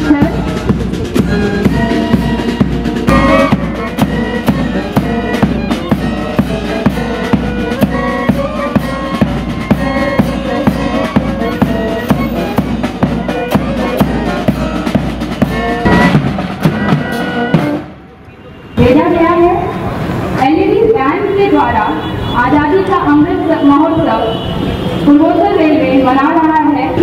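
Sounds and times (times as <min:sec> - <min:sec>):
bass and snare drum beat: 0:00.0 - 0:17.9
brass band playing: 0:00.0 - 0:18.2.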